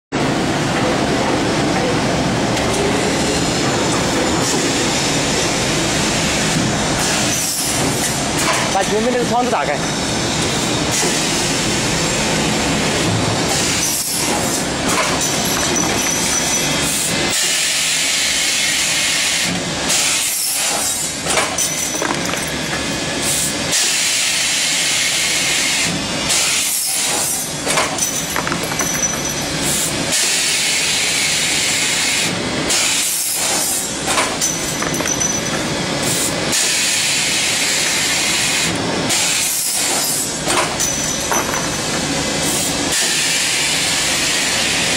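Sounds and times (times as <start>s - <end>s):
loud hissing machine noise: 0.2s - 44.9s.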